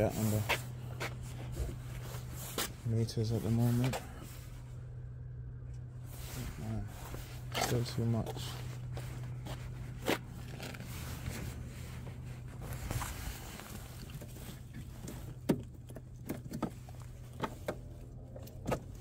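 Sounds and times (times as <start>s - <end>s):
footsteps: 0.0s - 4.6s, 6.2s - 15.2s
steady low hum: 0.0s - 19.0s.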